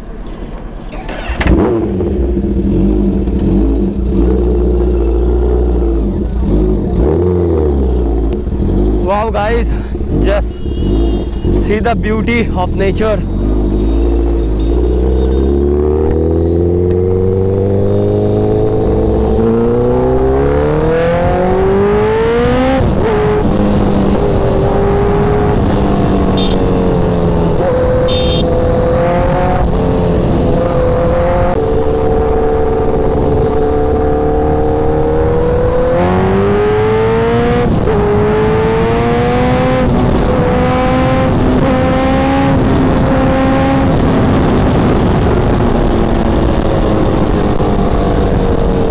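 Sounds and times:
motorcycle engine accelerating: 1.0s - 48.9s
wind noise: 15.8s - 48.9s.

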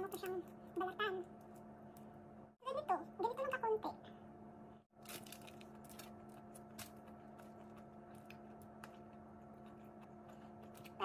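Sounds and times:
crawfish shells cracking: 5.0s - 9.2s.

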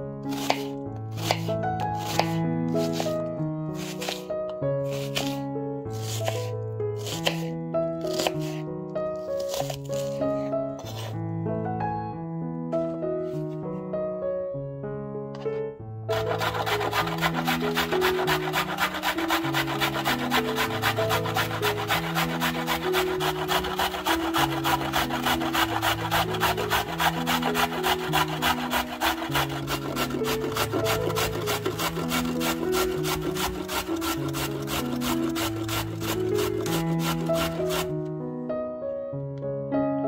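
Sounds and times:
background music: 0.0s - 40.0s
carrot scraping on a grater: 0.3s - 3.2s, 3.8s - 7.5s, 8.1s - 8.6s, 9.4s - 10.2s, 10.8s - 11.2s, 16.1s - 38.0s.

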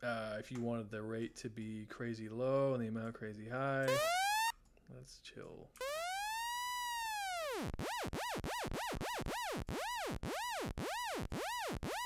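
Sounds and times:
synth note with pitch vibrato: 3.9s - 4.5s, 5.8s - 12.0s.

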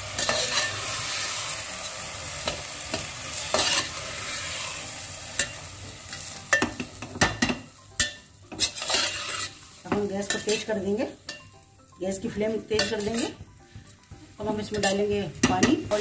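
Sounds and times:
rice sizzling in hot oil: 0.0s - 16.0s
metal spoon scraping pot: 8.5s - 9.6s.

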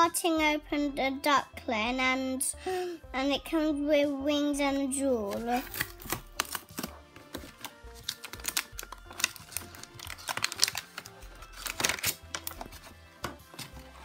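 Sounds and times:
plastic packaging crackling: 5.3s - 14.0s.

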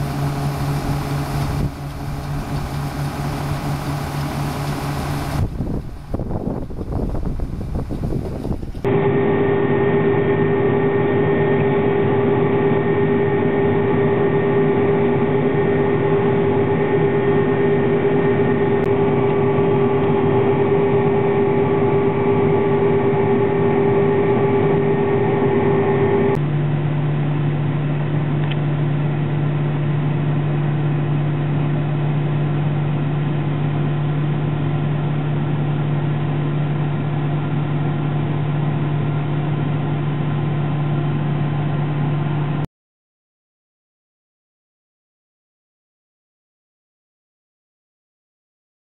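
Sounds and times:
combine harvester drone: 0.0s - 42.6s
low engine drone: 0.0s - 42.7s.

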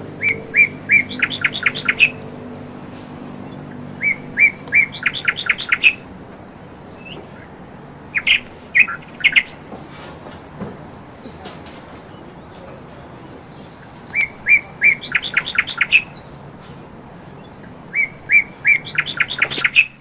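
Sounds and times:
bird chirping: 0.0s - 2.6s, 3.2s - 16.4s, 17.1s - 20.0s.

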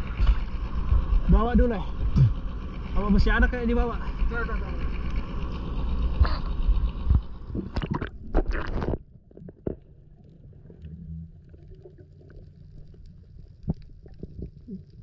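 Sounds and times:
low steady hum: 0.0s - 15.0s
muffled underwater sound: 0.0s - 15.0s
water splashing and bubbling: 7.0s - 15.0s.

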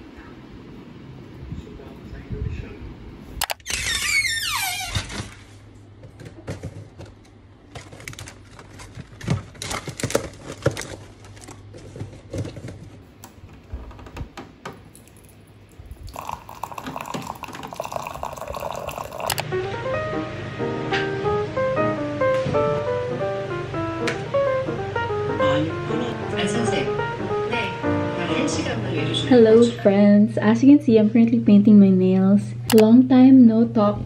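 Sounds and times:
packets clicking and knocking: 6.1s - 13.0s
water running into mug: 15.0s - 19.4s.

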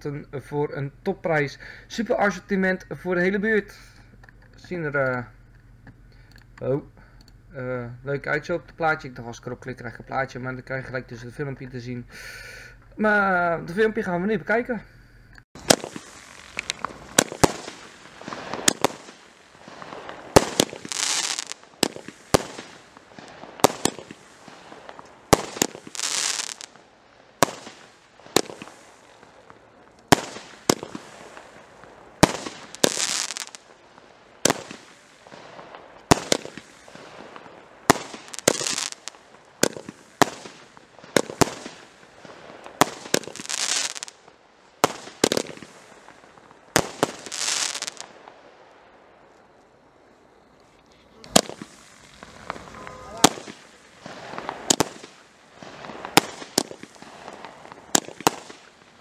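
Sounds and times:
hissing crackle: 15.2s - 59.0s
firework bangs: 15.6s - 50.2s, 51.1s - 59.0s.

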